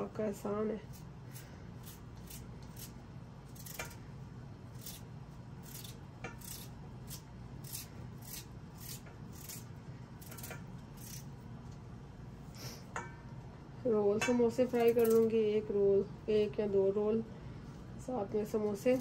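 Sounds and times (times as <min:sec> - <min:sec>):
steady low hum: 0:00.0 - 0:19.0
knife slicing vegetables: 0:00.8 - 0:11.4, 0:14.2 - 0:15.4, 0:18.6 - 0:19.0.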